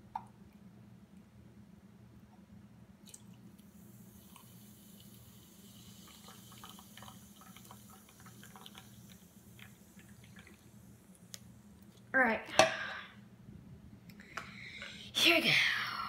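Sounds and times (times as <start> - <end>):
fizzing: 3.1 - 11.2
liquid pouring into glass: 4.0 - 10.9.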